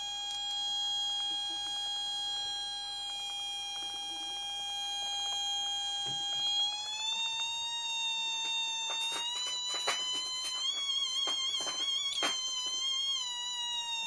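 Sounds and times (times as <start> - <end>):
theremin electronic tone: 0.0 - 14.0.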